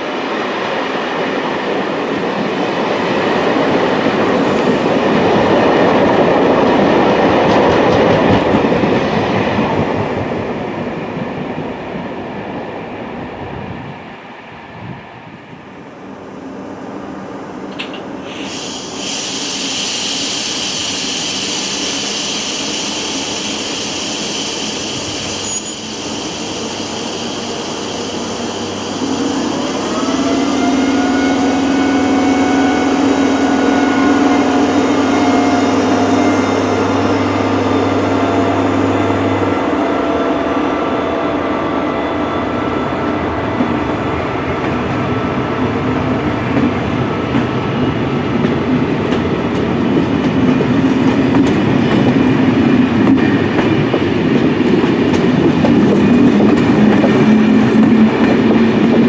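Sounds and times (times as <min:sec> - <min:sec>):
coaches rumbling on rails: 0:00.0 - 0:14.1, 0:14.7 - 0:59.0
locomotive hiss and hum: 0:15.8 - 0:41.9.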